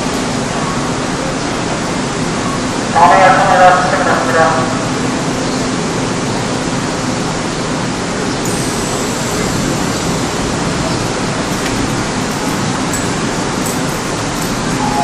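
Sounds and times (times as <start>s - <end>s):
steady rushing noise: 7.0s - 15.0s.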